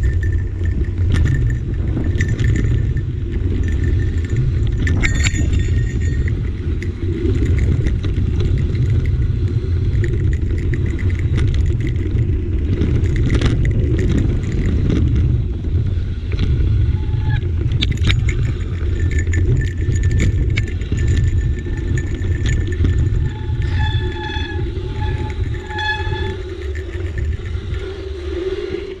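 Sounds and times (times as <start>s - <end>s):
mountain bike rolling on dirt: 0.0s - 28.1s
bike rattling over bumps: 0.0s - 28.2s
short high squeaks: 22.5s - 27.6s.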